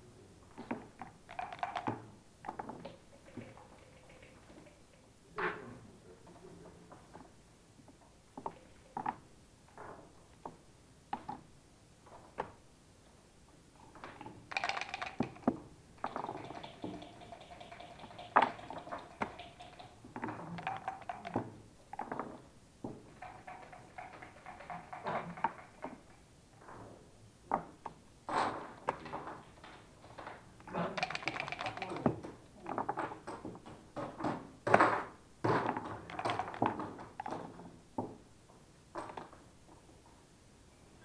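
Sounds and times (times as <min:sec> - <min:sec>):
dice rattling in a cup: 0:01.0 - 0:02.0, 0:02.9 - 0:04.8, 0:14.5 - 0:21.5, 0:23.1 - 0:26.1, 0:30.6 - 0:32.2, 0:36.0 - 0:37.4
checkers clicking on board: 0:01.0 - 0:02.1, 0:02.8 - 0:05.0, 0:14.5 - 0:21.6, 0:23.1 - 0:26.2, 0:30.6 - 0:32.3, 0:36.0 - 0:37.4.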